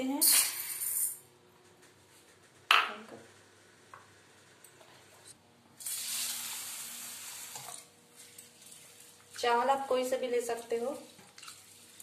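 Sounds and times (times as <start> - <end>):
kitchen tap running: 5.8 - 12.0.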